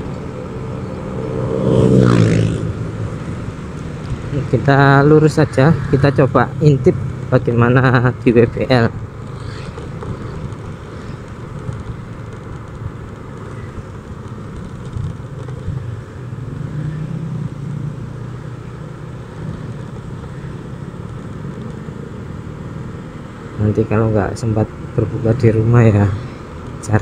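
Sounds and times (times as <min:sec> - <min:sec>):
road and wind noise: 0:00.0 - 0:27.0
scooter engine running: 0:08.7 - 0:15.8.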